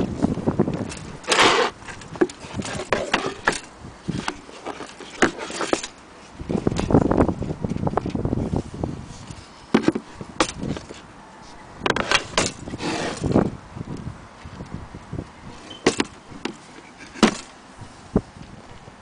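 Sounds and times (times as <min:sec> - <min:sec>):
drawer sliding scrape: 0:01.2 - 0:05.9, 0:11.9 - 0:13.4
wooden box knocks and clicks: 0:09.7 - 0:10.6, 0:15.8 - 0:16.6, 0:17.2 - 0:17.5.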